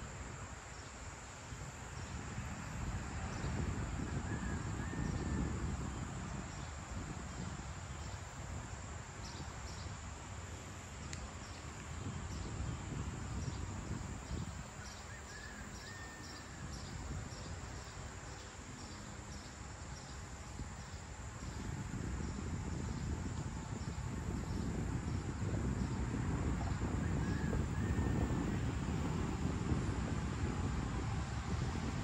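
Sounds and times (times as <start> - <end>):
low outdoor rumble: 1.1 - 32.0
insects chirping in pulses: 13.4 - 25.2.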